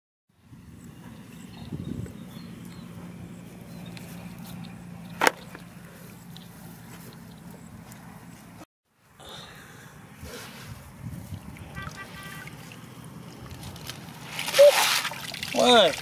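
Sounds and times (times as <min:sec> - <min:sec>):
footsteps in dry grass: 0:02.1 - 0:08.6.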